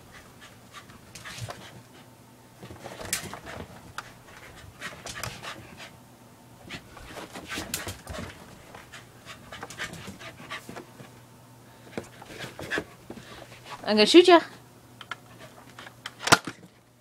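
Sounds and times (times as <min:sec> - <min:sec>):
dog panting: 0:03.2 - 0:06.0, 0:06.6 - 0:11.1.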